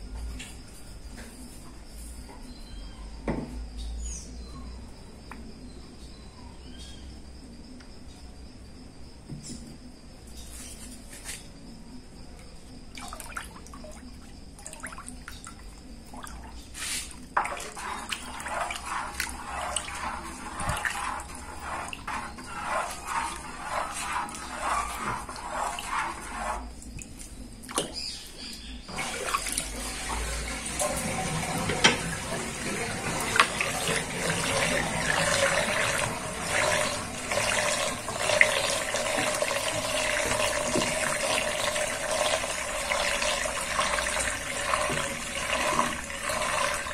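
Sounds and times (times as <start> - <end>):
water sloshing in a sink: 12.9 - 28.1, 28.9 - 46.9
water draining down a plughole: 17.4 - 26.6, 28.9 - 46.9.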